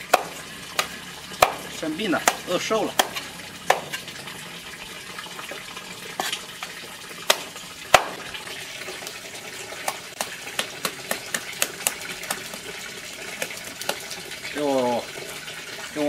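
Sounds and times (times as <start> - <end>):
cleaver chopping on wooden board: 0.1 - 4.0, 7.3 - 8.2, 9.8 - 12.6.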